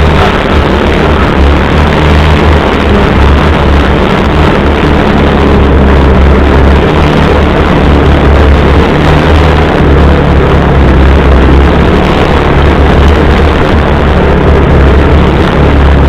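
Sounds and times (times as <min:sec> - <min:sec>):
vehicle engine droning: 0:00.0 - 0:16.0
vehicle moving over rough ground: 0:00.0 - 0:16.0.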